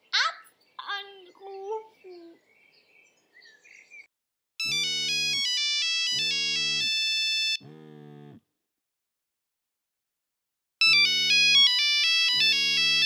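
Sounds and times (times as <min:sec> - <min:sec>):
telephone electronic ringtone: 0:04.6 - 0:07.6, 0:10.8 - 0:13.0.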